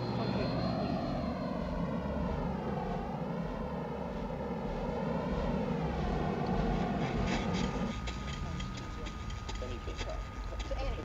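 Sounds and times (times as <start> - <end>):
steady mechanical roar: 0.0 - 11.0.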